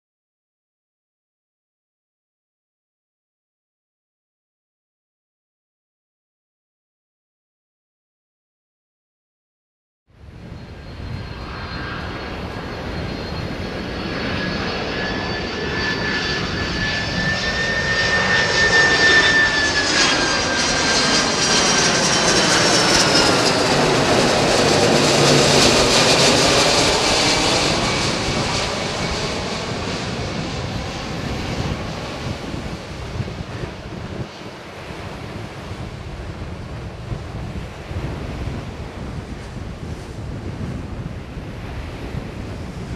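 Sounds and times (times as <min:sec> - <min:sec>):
jet airliner flying overhead: 0:10.1 - 0:42.9.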